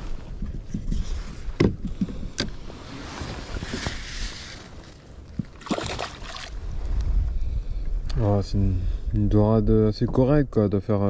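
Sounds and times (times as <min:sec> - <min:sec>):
wind rumble on microphone: 0:00.0 - 0:11.0
water splash: 0:05.4 - 0:06.6.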